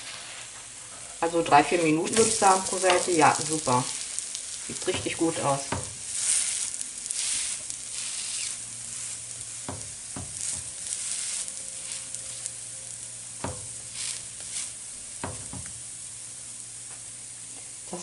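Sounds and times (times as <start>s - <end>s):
flatbread sizzling in a pan: 0.0s - 18.0s.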